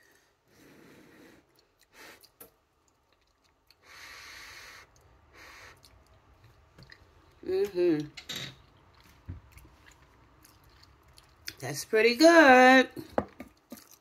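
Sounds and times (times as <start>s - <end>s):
person breathing while eating: 0.0s - 2.4s, 3.7s - 6.0s.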